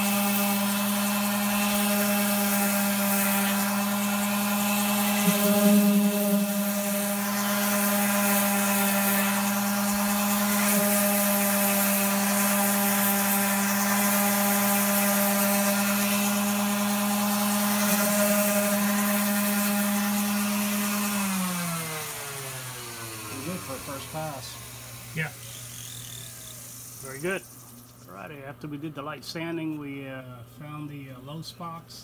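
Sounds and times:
orbital sander sanding filler: 0:00.0 - 0:28.2.

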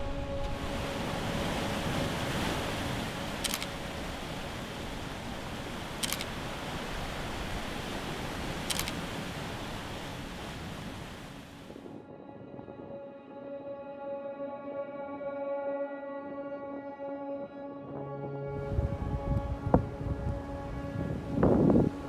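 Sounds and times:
surf churning over rocks: 0:00.0 - 0:11.8
camera shutter clicks: 0:03.4 - 0:03.8, 0:06.0 - 0:06.4, 0:08.6 - 0:09.0.

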